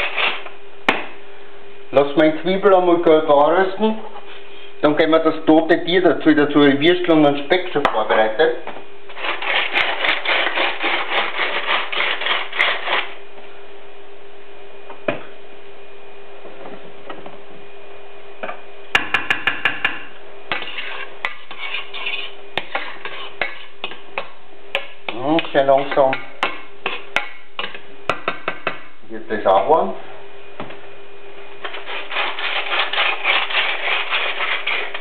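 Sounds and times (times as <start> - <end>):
faint steady hum: 0.0 - 35.0
food rustling: 31.6 - 35.0
rhythmic scraping: 31.6 - 35.0.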